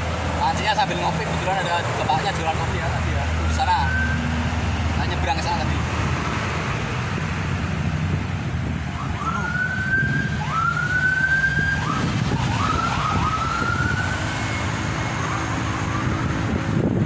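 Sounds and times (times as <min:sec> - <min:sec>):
traffic rumble: 0:00.0 - 0:17.0
siren whooping: 0:03.4 - 0:04.3, 0:08.9 - 0:16.6.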